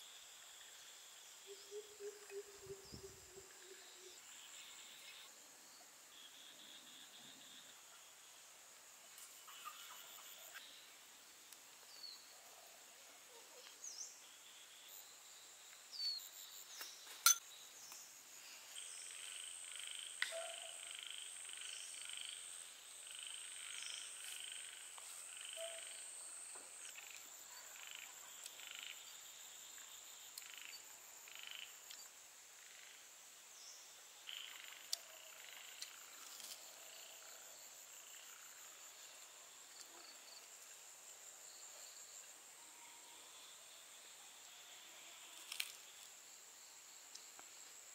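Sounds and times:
frogs croaking: 0:19.0 - 0:33.1, 0:34.2 - 0:36.2.

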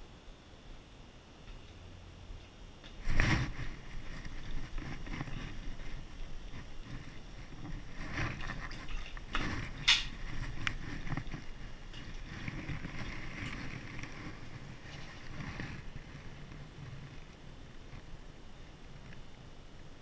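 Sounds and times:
rustling of gear and clothing: 0:03.0 - 0:18.2.

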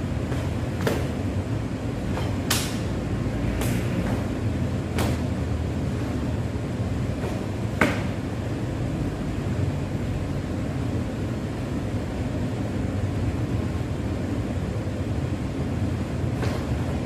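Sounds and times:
low background hum: 0:00.0 - 0:17.0
sharp snaps of strikes: 0:02.2 - 0:02.9.

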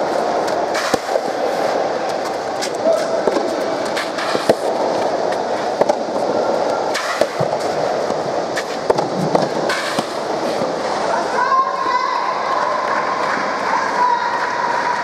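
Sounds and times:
background noise: 0:00.0 - 0:15.0
rackets hitting tennis ball: 0:00.3 - 0:10.7.

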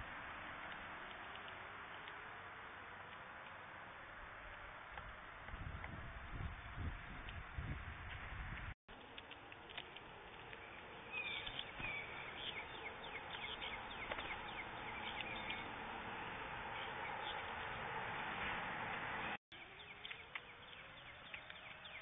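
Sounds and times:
small birds chirping: 0:08.9 - 0:18.5, 0:19.3 - 0:22.0.

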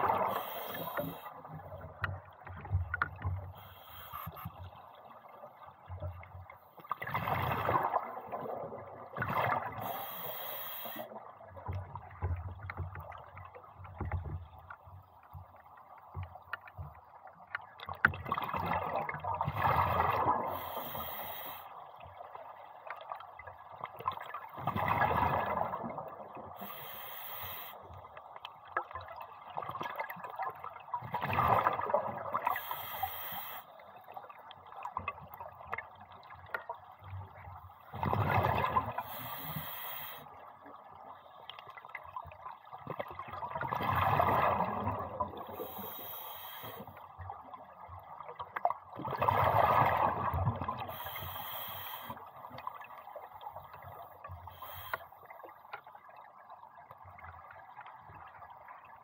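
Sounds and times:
exhaled bubbles gurgling: 0:00.0 - 0:03.2, 0:06.9 - 0:14.6, 0:18.0 - 0:21.4, 0:22.1 - 0:27.1, 0:29.0 - 0:36.5, 0:37.2 - 0:39.8, 0:42.1 - 0:54.8
regulator hiss: 0:09.9 - 0:11.0, 0:20.6 - 0:21.6, 0:26.6 - 0:27.8, 0:32.6 - 0:33.6, 0:51.0 - 0:52.2.

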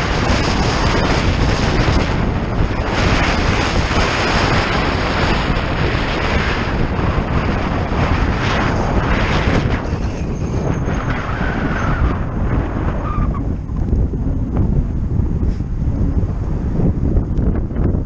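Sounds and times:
road noise: 0:00.0 - 0:18.0
wind rushing over microphone: 0:00.0 - 0:18.0.

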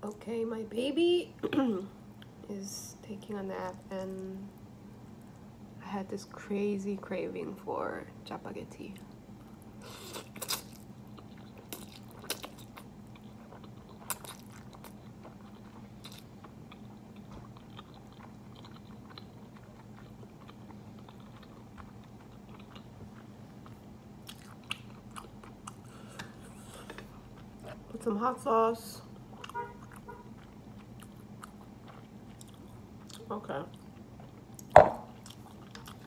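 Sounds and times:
steady low hum: 0:00.0 - 0:36.0
person slurping and chewing noodles: 0:09.8 - 0:16.9, 0:17.5 - 0:22.8.

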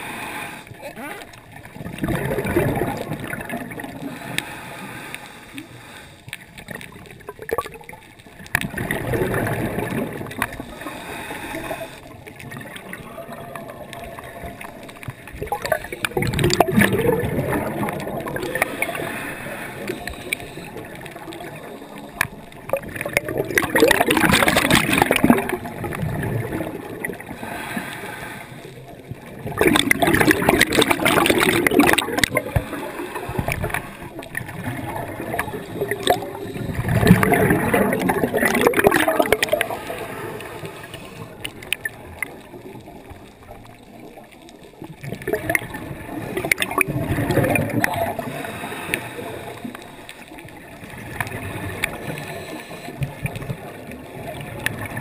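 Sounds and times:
diver inhaling through regulator: 0:00.0 - 0:00.8, 0:03.8 - 0:06.3, 0:10.5 - 0:12.2, 0:17.6 - 0:22.4, 0:27.2 - 0:28.9, 0:31.4 - 0:34.2, 0:35.2 - 0:41.5, 0:48.0 - 0:50.3, 0:51.8 - 0:53.0
gurgling exhaled bubbles: 0:00.7 - 0:04.8, 0:06.3 - 0:55.0.

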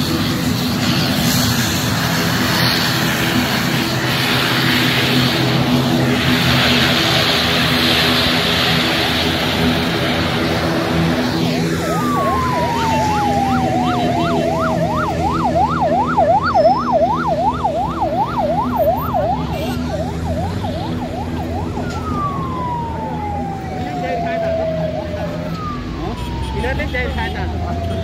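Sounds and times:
siren gliding down in pitch: 0:00.0 - 0:28.0
siren yelping: 0:00.0 - 0:28.0.

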